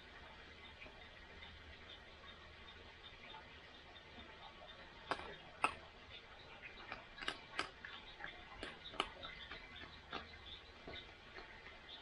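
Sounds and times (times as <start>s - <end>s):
animal crunching dry food: 4.8s - 12.0s.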